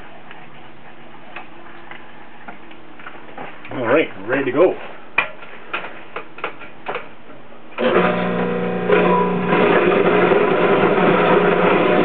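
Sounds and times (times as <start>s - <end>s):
motor running: 7.8s - 12.0s.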